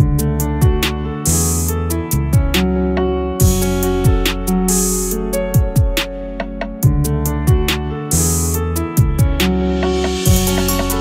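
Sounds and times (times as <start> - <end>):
drum beat with cymbals: 3.4 - 11.0
held chords: 9.0 - 11.0.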